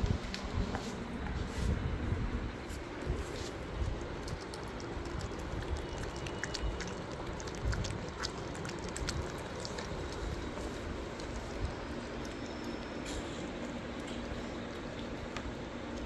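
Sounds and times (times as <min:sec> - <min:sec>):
puppies licking and lapping: 0:03.0 - 0:16.0.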